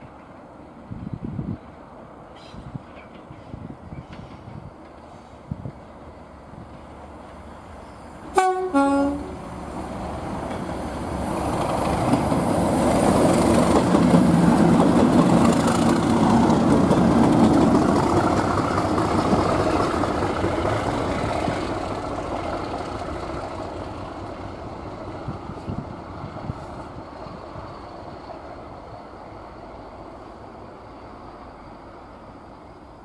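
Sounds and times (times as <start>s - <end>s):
diesel locomotives passing: 0.0s - 33.0s
two-tone locomotive horn: 8.3s - 9.4s.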